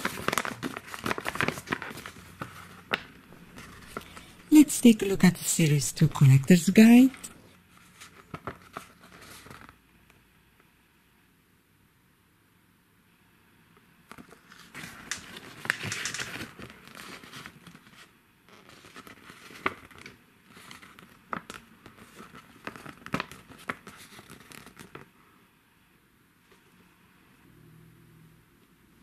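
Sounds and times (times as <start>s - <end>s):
paper leaflet crinkling: 0.0s - 7.3s, 7.9s - 9.8s.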